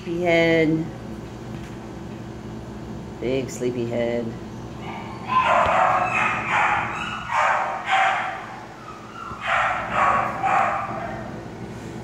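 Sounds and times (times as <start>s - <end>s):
dog barking: 4.8s - 11.4s.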